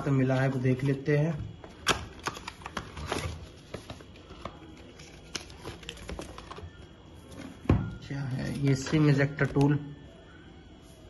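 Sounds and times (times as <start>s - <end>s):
packaging clicks and rustles: 0.1s - 7.6s.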